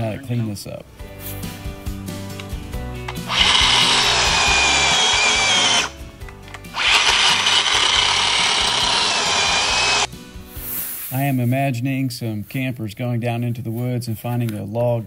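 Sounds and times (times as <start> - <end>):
background music: 0.0 - 15.0
chainsaw cutting log: 3.1 - 6.0, 6.7 - 10.1.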